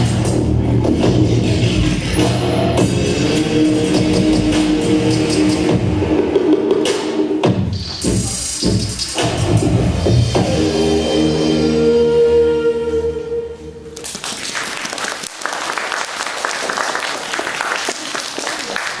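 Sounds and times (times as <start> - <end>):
dance music: 0.0 - 12.3
audience applause: 14.0 - 19.0.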